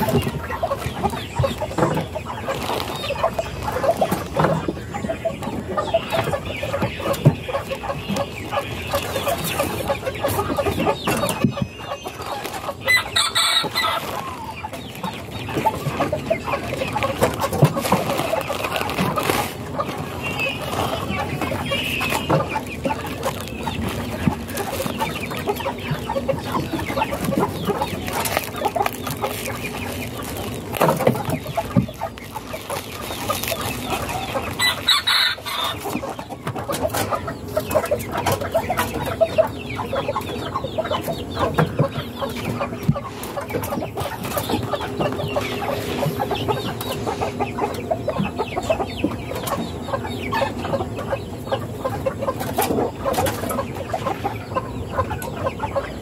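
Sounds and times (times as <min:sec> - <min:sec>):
chickens clucking: 0:00.0 - 0:56.0
bubble wrap crinkling: 0:02.4 - 0:04.3, 0:12.3 - 0:14.4, 0:16.9 - 0:25.6, 0:26.5 - 0:36.1
rooster crowing: 0:12.9 - 0:14.4, 0:34.6 - 0:35.8.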